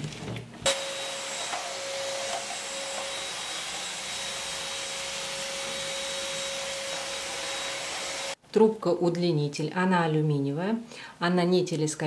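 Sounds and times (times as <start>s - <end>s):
stick vacuum running on tiles: 0.7s - 8.4s.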